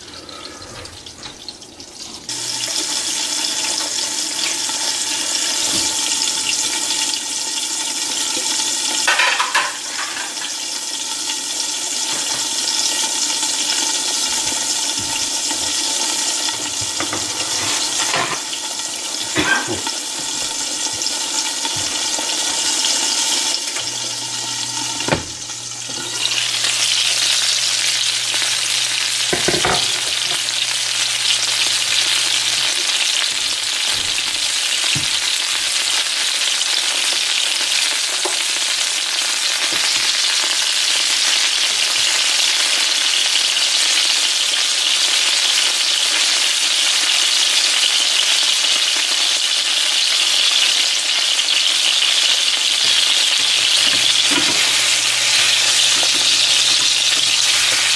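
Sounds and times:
fish sizzling in oil: 0.0 - 57.9
lid and spatula knocking pan: 29.3 - 30.4, 53.6 - 57.9.

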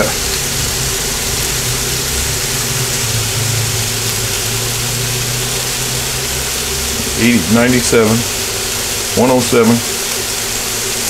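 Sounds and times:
cooktop low hum: 0.0 - 11.0
steaks sizzling on a grill plate: 0.0 - 11.0.

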